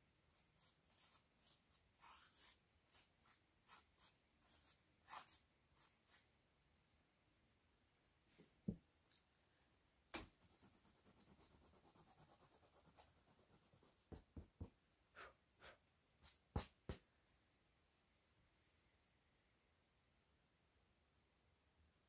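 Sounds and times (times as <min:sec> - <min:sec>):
scratchy drawing strokes on canvas: 0:00.3 - 0:06.3, 0:10.4 - 0:14.5.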